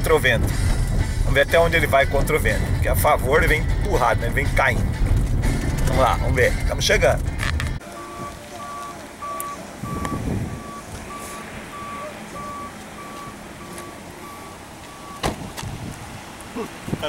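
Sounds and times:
low rustle or bump: 4.3s - 7.8s
electronic warning beeps: 7.8s - 15.3s.

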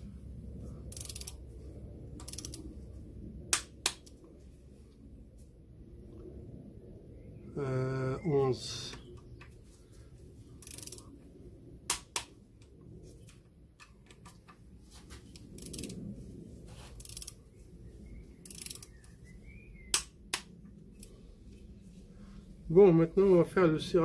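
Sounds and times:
torque wrench clicks: 0.9s - 1.4s, 2.2s - 2.6s, 10.6s - 11.0s, 18.4s - 19.0s
wrench ratcheting: 0.9s - 1.4s, 2.2s - 2.6s, 10.6s - 11.0s, 15.6s - 16.0s, 17.0s - 17.4s, 18.4s - 19.0s.

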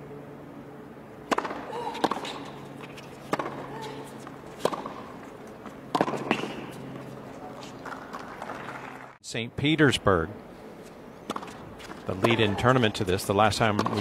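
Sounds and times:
tennis ball struck by racquets: 1.2s - 6.9s, 11.2s - 12.6s, 13.6s - 14.0s.

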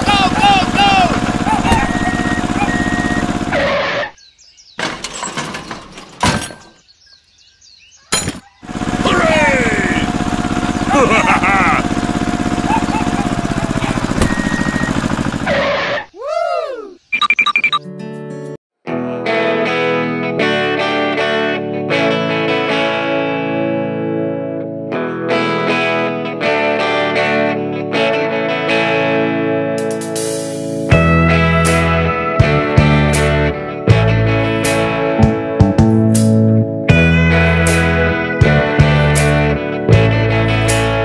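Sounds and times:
small engine running: 0.0s - 4.0s, 8.6s - 15.8s
birds chirping: 0.0s - 15.0s, 16.0s - 17.7s
electric guitar chords ringing: 18.9s - 41.0s.

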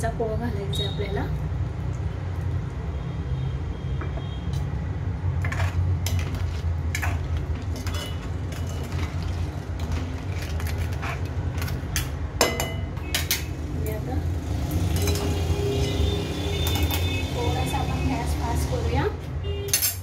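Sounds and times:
spoon scraping steel pan: 5.4s - 12.0s.

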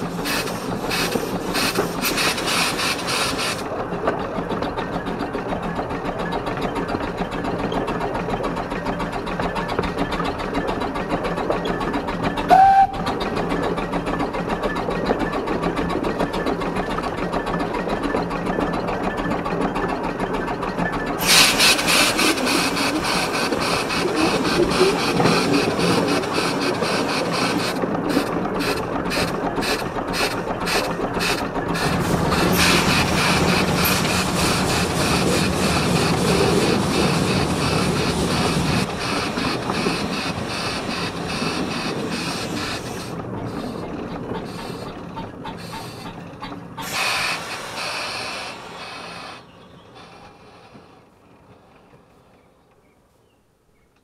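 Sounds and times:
steam locomotive hiss and rattle: 0.0s - 3.7s, 21.2s - 46.2s, 46.8s - 51.2s
steam rush: 0.0s - 3.7s, 21.2s - 46.2s, 46.8s - 51.1s
steam exhaust beats: 0.0s - 52.2s.

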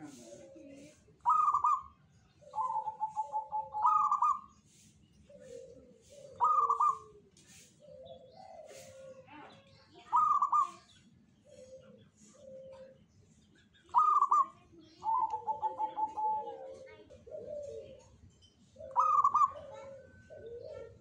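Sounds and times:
dove cooing: 0.0s - 13.1s, 13.9s - 21.0s.

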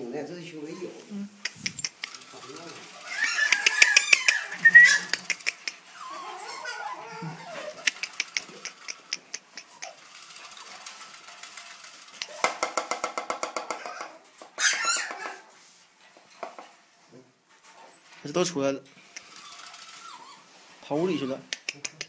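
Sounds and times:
puppy yapping: 3.0s - 10.1s, 13.8s - 15.5s, 19.2s - 21.7s.

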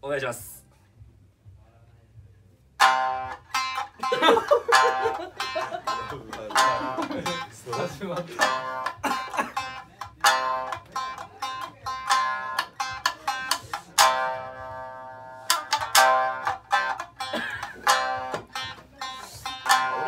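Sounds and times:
shamisen playing: 2.8s - 7.8s, 10.2s - 17.0s, 17.9s - 20.0s.

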